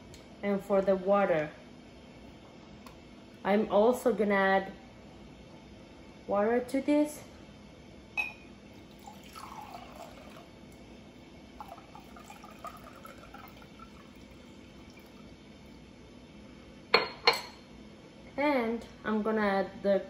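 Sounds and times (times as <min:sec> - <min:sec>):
water trickling into a glass cup: 0:08.8 - 0:10.8, 0:11.6 - 0:15.8.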